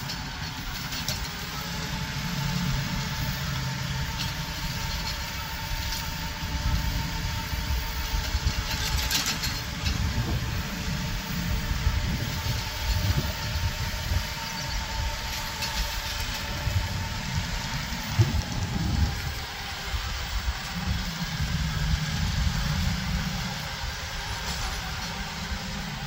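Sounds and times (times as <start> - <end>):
faint steady whine: 0.0 - 26.0
tractor engine running: 0.0 - 26.0.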